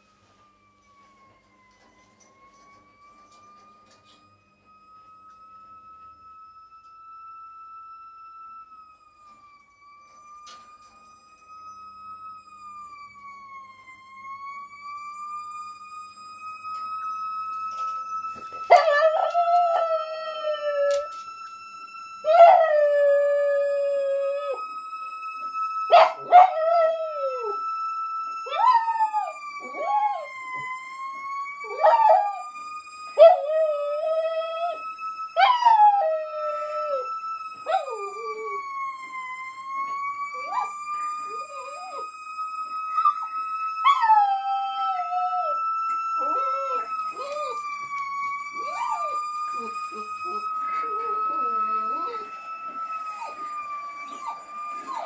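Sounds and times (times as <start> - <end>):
siren wailing on television: 0.0 - 55.0
dog howling: 46.2 - 55.0.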